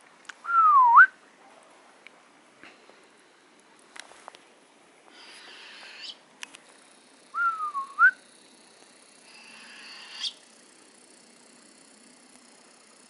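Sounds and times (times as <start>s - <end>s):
owl hissing screech: 5.1s - 6.2s, 9.2s - 10.5s
owl whistled call: 5.2s - 6.2s, 7.4s - 8.2s, 9.3s - 10.4s.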